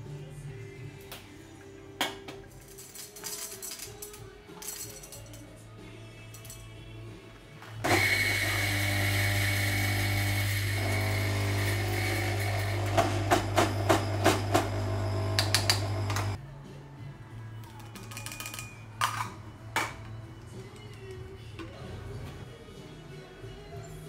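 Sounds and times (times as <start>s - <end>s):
electric coffee grinder humming: 7.8s - 16.4s.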